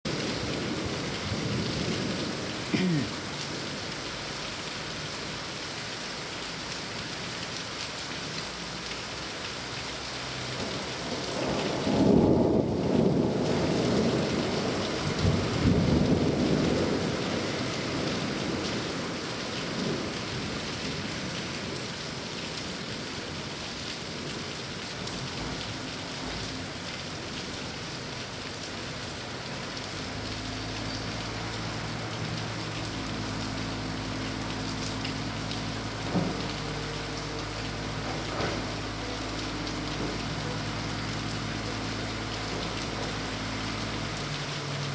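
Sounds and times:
steady rain falling: 0:00.1 - 0:44.9
thunder rumble: 0:10.6 - 0:20.7.

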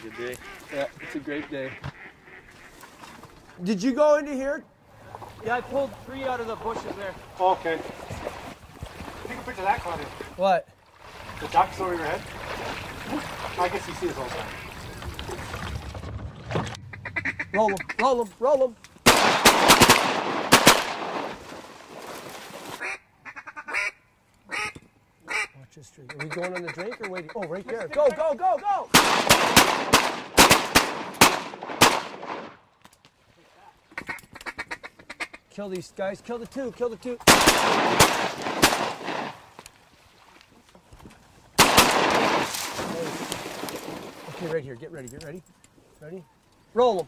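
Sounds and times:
duck quacks: 0:00.0 - 0:02.8, 0:16.9 - 0:18.1, 0:22.8 - 0:28.4, 0:33.9 - 0:35.4
shotguns firing: 0:19.0 - 0:21.4, 0:28.9 - 0:32.6, 0:37.2 - 0:39.4, 0:41.6 - 0:43.0.

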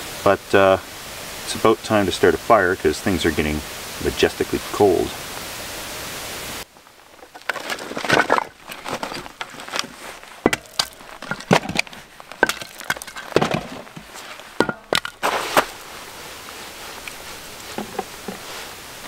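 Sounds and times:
firewood knocking on metal ring: 0:10.4 - 0:15.2.

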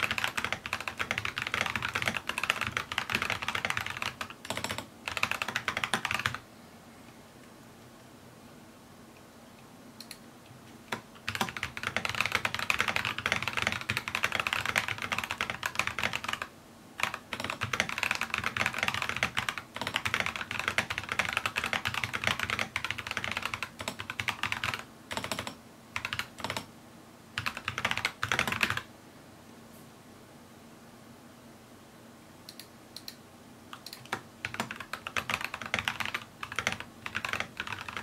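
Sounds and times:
rapid typing on mechanical keyboard: 0:00.0 - 0:06.4, 0:10.9 - 0:26.7, 0:27.4 - 0:28.9, 0:33.8 - 0:38.0.

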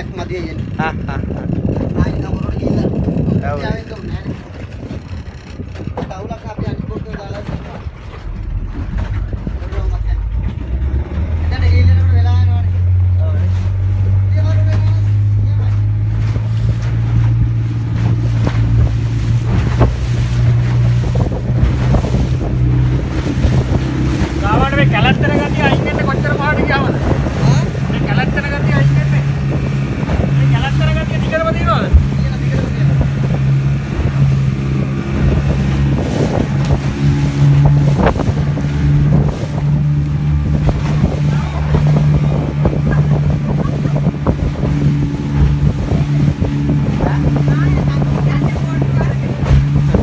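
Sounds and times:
boat engine humming: 0:00.0 - 0:50.0
hull slapping through waves: 0:00.0 - 0:50.0
outboard motor droning: 0:00.0 - 0:50.0
wind buffeting microphone: 0:00.0 - 0:50.0
knocks or splashes: 0:13.4 - 0:50.0.

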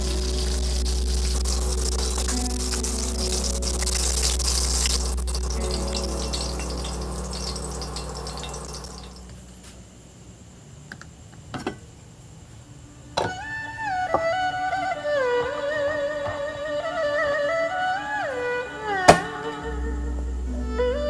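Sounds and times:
fish sizzling in hot oil: 0:00.0 - 0:09.3
steady low hum: 0:00.0 - 0:10.2.

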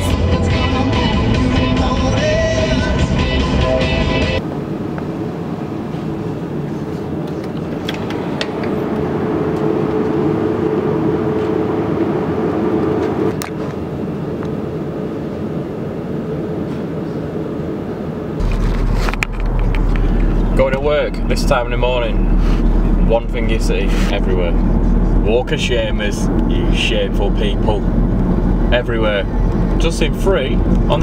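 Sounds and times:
car cabin drone while driving: 0:00.0 - 0:31.0
drinks chiller hum and fan: 0:00.0 - 0:31.0.

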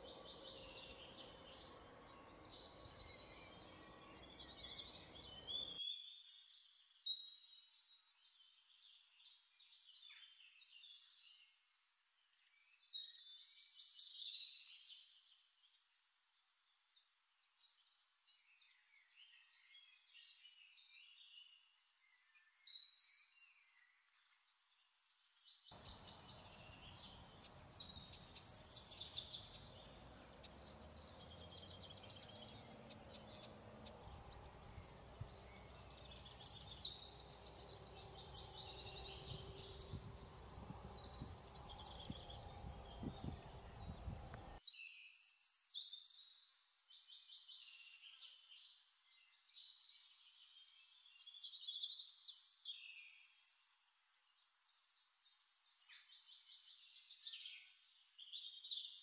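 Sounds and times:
small birds chirping: 0:00.0 - 0:59.0
low background noise: 0:25.8 - 0:44.6.

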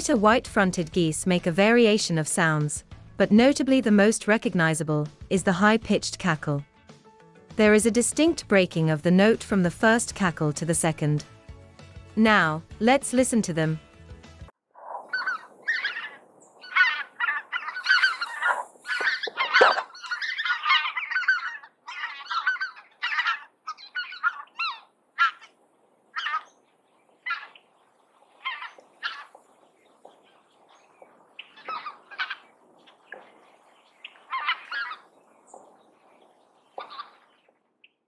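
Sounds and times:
geese calling: 0:14.8 - 0:35.7, 0:36.7 - 0:37.4.

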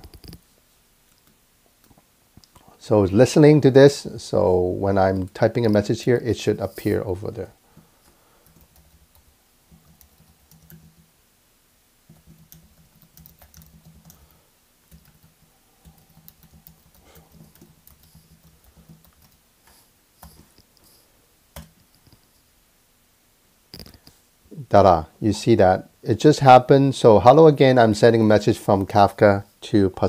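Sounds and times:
typing on keyboard: 0:08.4 - 0:11.1, 0:12.1 - 0:14.3, 0:14.9 - 0:20.6.

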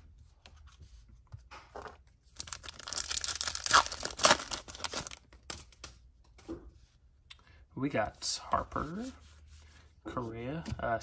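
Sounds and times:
foil wrapper tearing and crinkling: 0:02.4 - 0:05.2.

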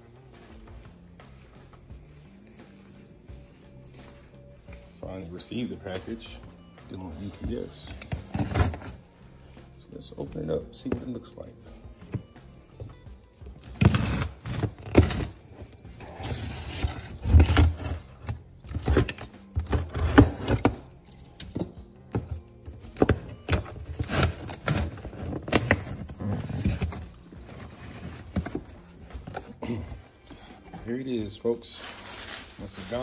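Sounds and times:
tape tearing: 0:13.6 - 0:20.9, 0:23.0 - 0:29.8, 0:31.7 - 0:33.0
knife slitting cardboard box: 0:23.0 - 0:28.8.

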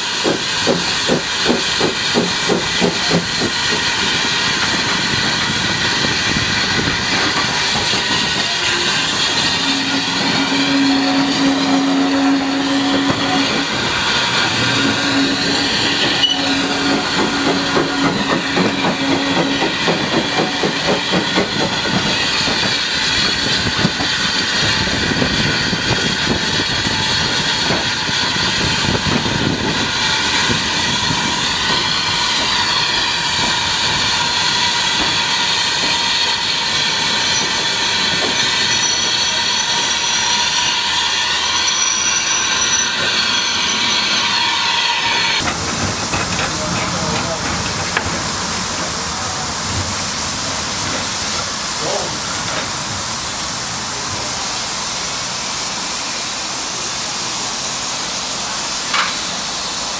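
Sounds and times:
steam hissing: 0:00.0 - 0:59.9
wheels clattering on rails: 0:00.2 - 0:09.6, 0:34.9 - 0:40.6, 0:42.1 - 0:50.1.

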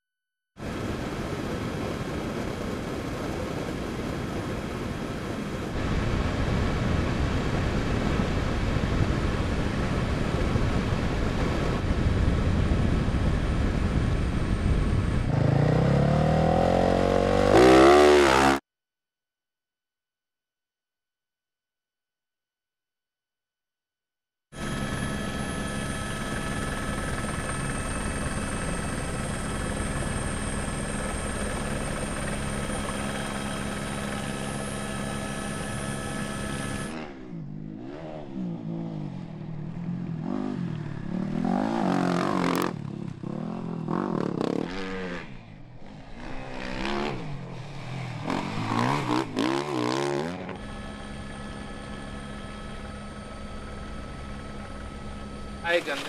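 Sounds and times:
helicopter drone: 0:00.6 - 0:18.6, 0:24.6 - 0:56.0
motorcycle engine revving: 0:12.8 - 0:18.6, 0:35.8 - 0:52.9.

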